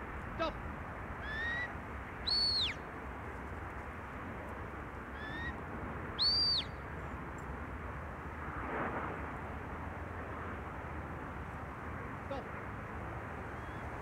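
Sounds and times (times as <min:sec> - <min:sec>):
shepherd's whistle: 0:01.2 - 0:02.8, 0:06.2 - 0:06.8.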